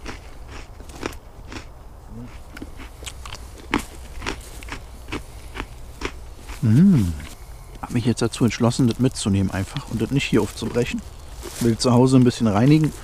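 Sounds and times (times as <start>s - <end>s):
biscuit crunching: 0.0s - 1.7s, 2.3s - 7.3s.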